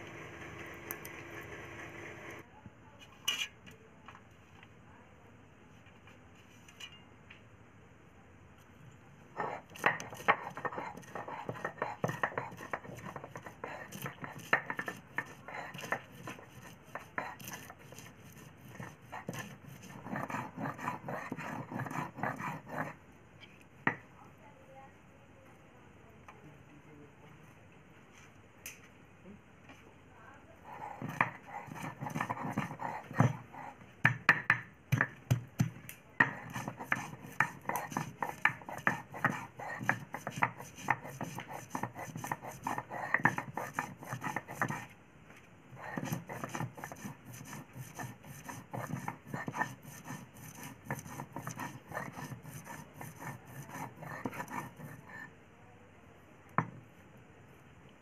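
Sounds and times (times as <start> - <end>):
stone grinding on stone: 9.4 - 23.0, 31.0 - 33.8, 36.2 - 44.9, 45.8 - 55.3.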